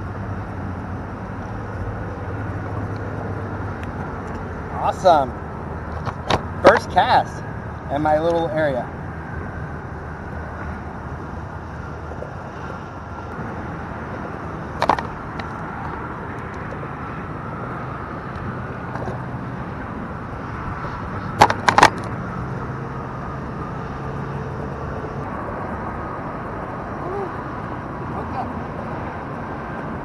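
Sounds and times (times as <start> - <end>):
freeway traffic hum: 0.0 - 30.0.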